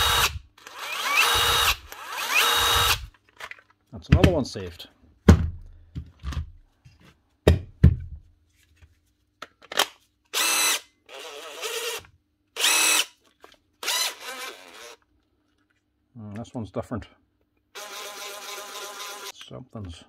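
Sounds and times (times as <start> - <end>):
impact driver motor whining: 0.0 - 3.1, 10.4 - 13.1, 13.8 - 15.0, 17.8 - 19.3.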